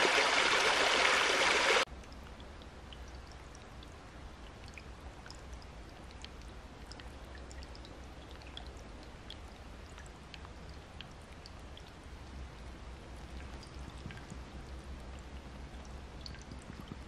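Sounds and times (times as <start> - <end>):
gently moving water hiss: 0.0 - 1.9.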